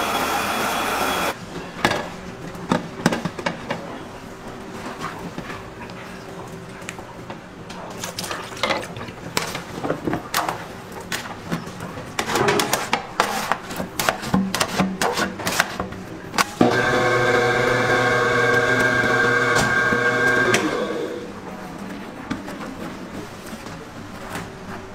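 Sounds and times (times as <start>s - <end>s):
food processor clattering and knocking: 16.6s - 21.1s.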